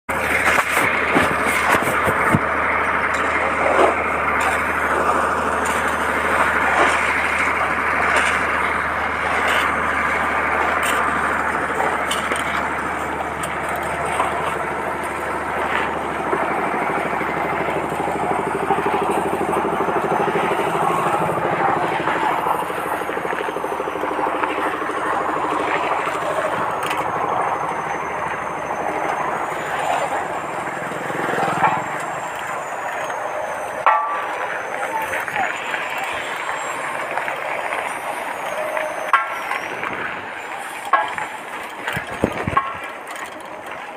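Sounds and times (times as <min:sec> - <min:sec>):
engine running steadily: 0:00.1 - 0:43.9
knocks and clatter: 0:00.3 - 0:12.8.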